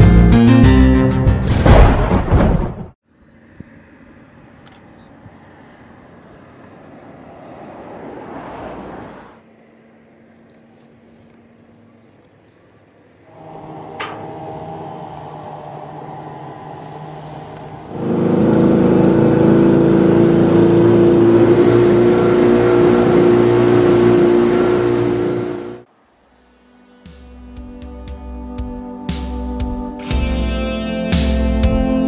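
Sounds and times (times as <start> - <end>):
guitar music: 13.3 - 24.4, 30.0 - 32.0
motor engine running: 13.3 - 25.8.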